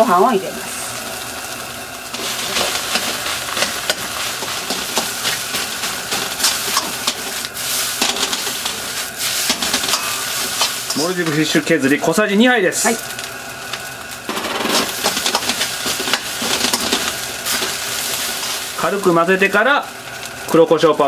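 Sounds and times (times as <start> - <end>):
rice sizzling in a wok: 0.0 - 21.0
metal ladle scraping a wok: 2.1 - 11.2.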